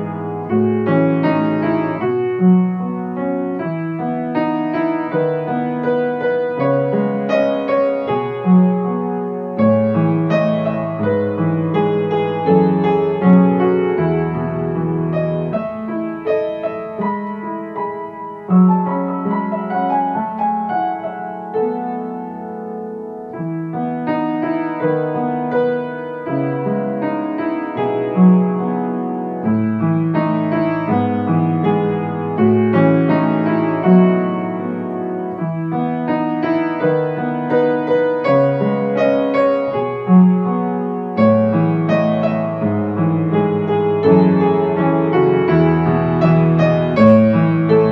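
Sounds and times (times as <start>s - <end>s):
calm piano music: 0.0s - 47.9s.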